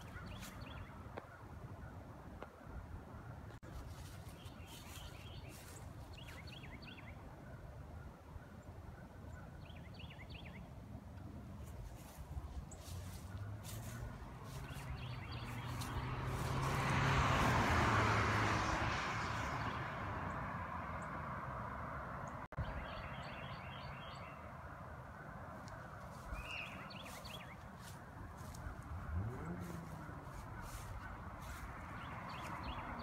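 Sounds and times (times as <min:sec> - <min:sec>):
low engine hum: 0:10.9 - 0:22.5, 0:26.2 - 0:33.0
vehicle passing: 0:12.8 - 0:22.5, 0:26.1 - 0:33.0.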